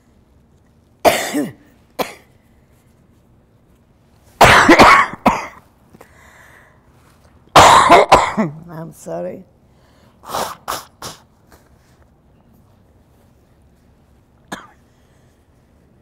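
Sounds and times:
elderly woman coughing: 1.0s - 2.3s, 4.4s - 5.6s, 7.5s - 8.6s, 14.5s - 14.9s.

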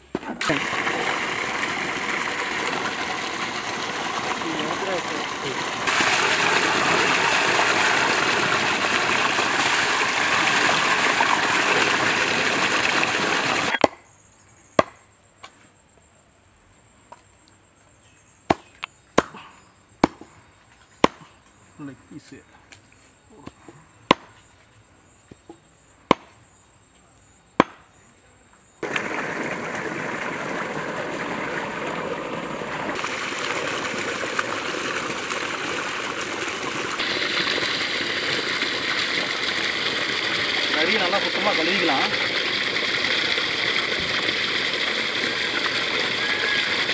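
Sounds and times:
water gushing from a pipe: 0.4s - 13.8s, 28.8s - 46.9s.

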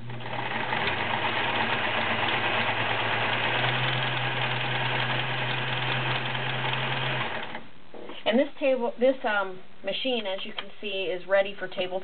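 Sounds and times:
sewing machine motor hum: 0.0s - 7.7s.

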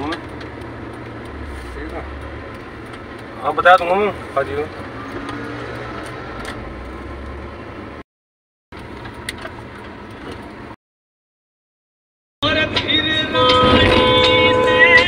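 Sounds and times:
vehicle engine rumbling: 0.0s - 8.0s, 8.7s - 10.8s, 12.4s - 15.0s.

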